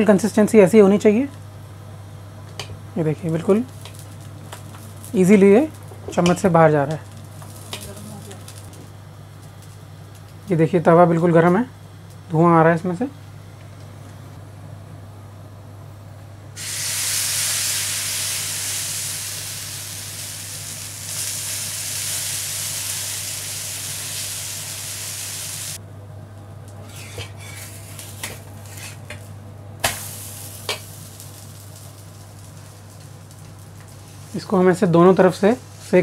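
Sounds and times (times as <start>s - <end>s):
batter sizzling on a griddle: 3.2s - 10.6s, 16.6s - 25.8s, 26.8s - 36.0s.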